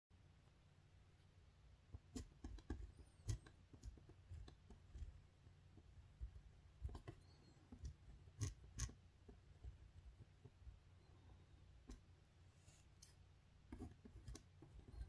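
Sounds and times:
pen tapping: 0:02.0 - 0:05.1.

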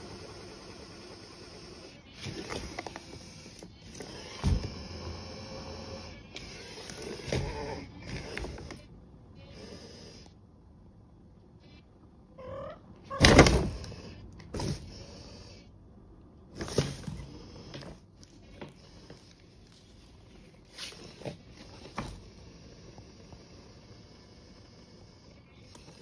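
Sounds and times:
cat chirping: 0:11.7 - 0:13.2.

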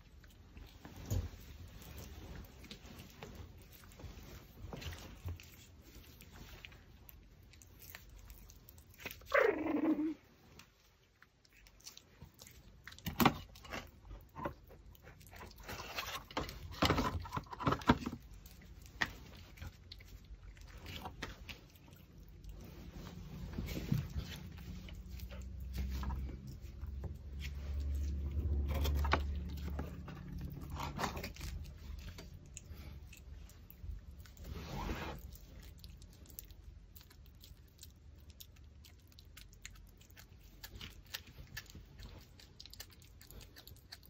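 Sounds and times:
dog gnawing a bone: 0:00.0 - 0:44.0
dog whining: 0:09.2 - 0:10.3.

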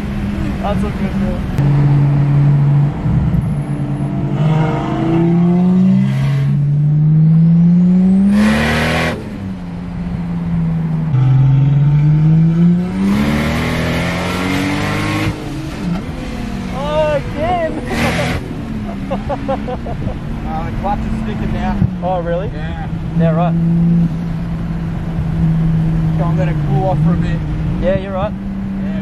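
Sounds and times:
car engine revving hard: 0:00.0 - 0:09.4, 0:11.1 - 0:22.1.

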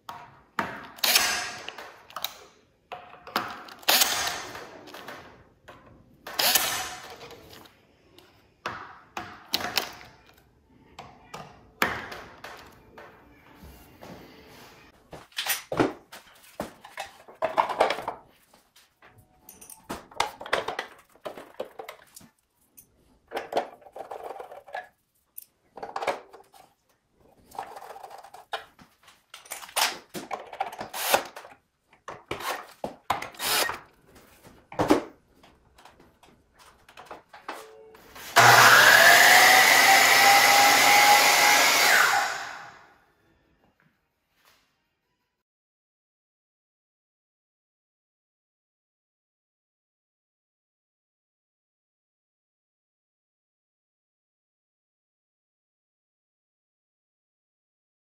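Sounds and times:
cordless drill fastening screws: 0:30.8 - 0:31.4, 0:33.3 - 0:33.8
saw motor whining: 0:38.4 - 0:42.8.

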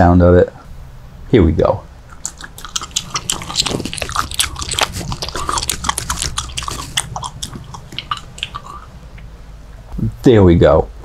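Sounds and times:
person chewing gum: 0:02.1 - 0:09.3
wet mouth clicks and smacks: 0:02.1 - 0:09.3.

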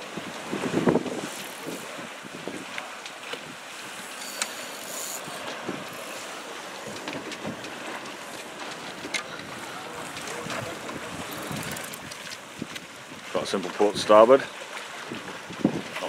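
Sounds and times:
wind buffeting microphone: 0:00.0 - 0:02.8, 0:06.8 - 0:13.3, 0:15.0 - 0:16.0
water washing along hull: 0:00.0 - 0:16.0.

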